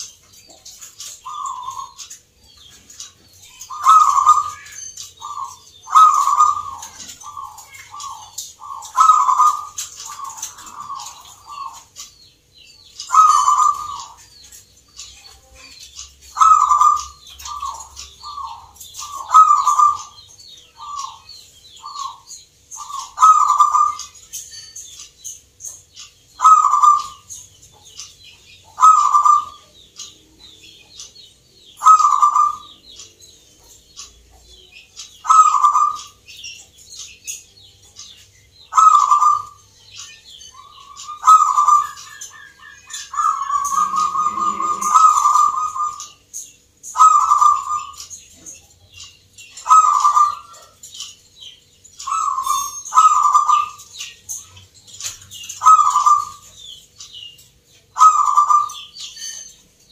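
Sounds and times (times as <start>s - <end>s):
small birds chirping: 0.0s - 59.9s
dove cooing: 0.6s - 2.2s, 3.6s - 12.0s, 13.0s - 14.3s, 16.3s - 20.2s, 21.8s - 24.2s, 26.4s - 27.3s, 28.8s - 29.8s, 31.8s - 32.8s, 35.2s - 36.2s, 38.7s - 39.6s, 40.6s - 46.2s, 46.9s - 48.0s, 49.6s - 50.8s, 52.0s - 53.8s, 55.5s - 56.5s, 58.0s - 58.9s.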